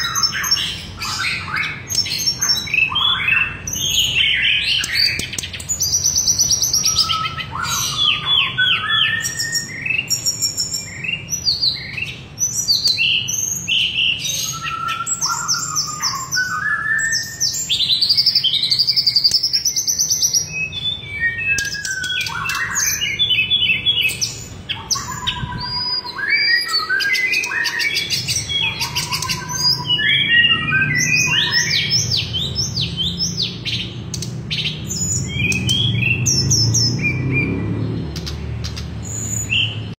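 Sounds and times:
songbird singing: 0.0s - 40.0s.

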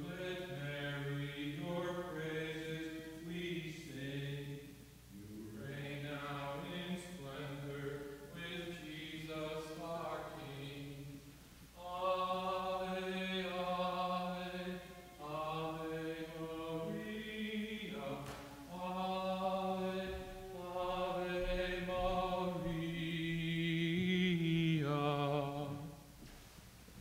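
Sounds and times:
man singing a chant: 0.0s - 11.2s, 11.8s - 26.0s.

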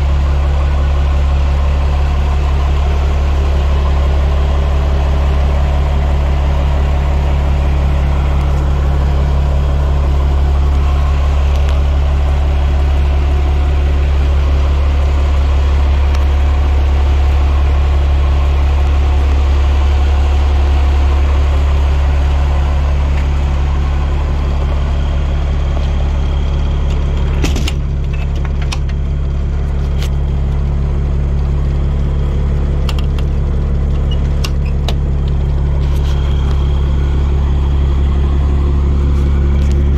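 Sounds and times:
diesel engine idling: 0.0s - 39.9s
sharp clicks and knocks: 26.8s - 29.0s, 32.8s - 36.6s.

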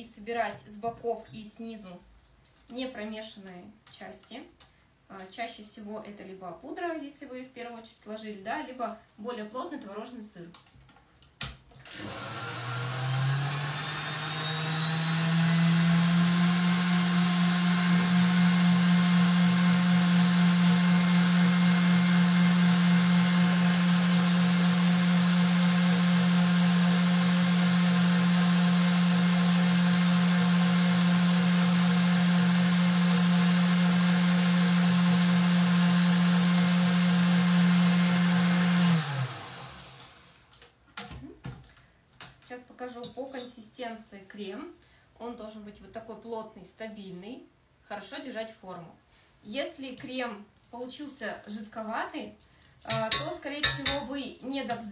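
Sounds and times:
stand mixer motor whipping cream: 11.9s - 40.2s.

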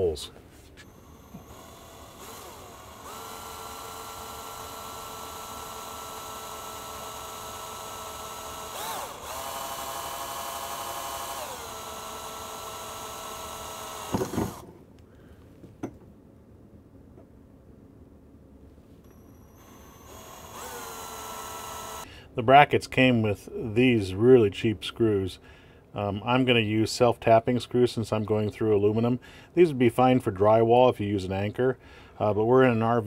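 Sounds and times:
cordless drill whining: 0.8s - 14.7s, 19.0s - 22.1s.

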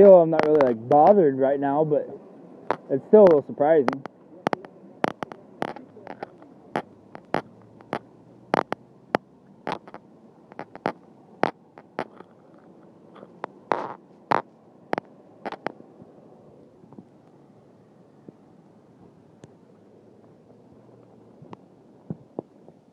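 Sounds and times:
pendant tapping against device: 2.7s - 8.8s.

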